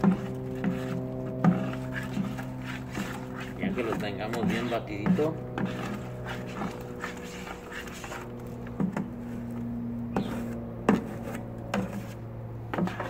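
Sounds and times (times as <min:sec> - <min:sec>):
trowel knocking against bucket: 0:00.0 - 0:06.8
steady low hum: 0:00.0 - 0:13.0
trowel scraping and stirring cement: 0:00.0 - 0:13.0.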